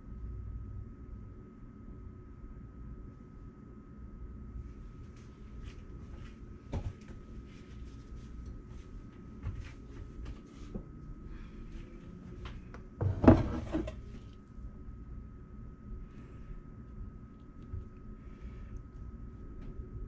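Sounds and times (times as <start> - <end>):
wooden tray knocking on countertop: 13.0 - 14.0.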